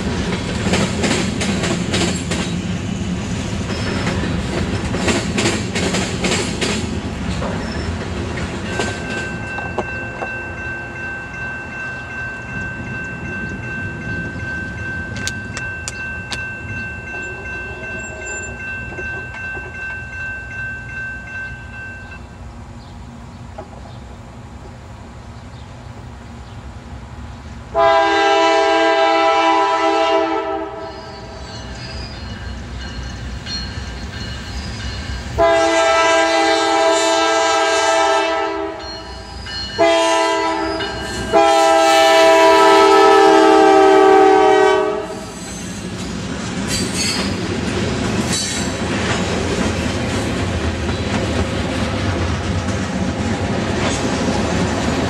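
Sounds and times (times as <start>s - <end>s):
train rumble approaching: 0.0s - 55.0s
locomotive horn blasts: 27.8s - 31.3s, 35.4s - 38.9s, 39.8s - 45.3s.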